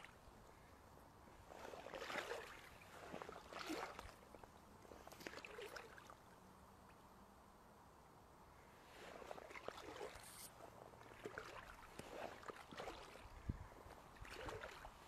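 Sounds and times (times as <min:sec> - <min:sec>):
wading steps sloshing in water: 0:01.4 - 0:06.4, 0:08.8 - 0:15.0.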